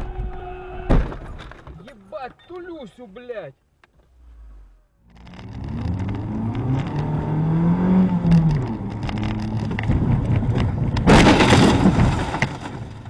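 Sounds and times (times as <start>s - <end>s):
car engine revving: 4.0s - 10.5s.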